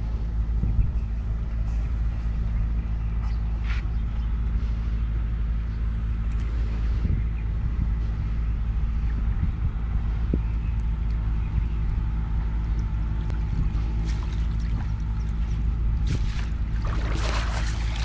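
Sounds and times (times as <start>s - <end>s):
engine humming: 0.0s - 18.0s.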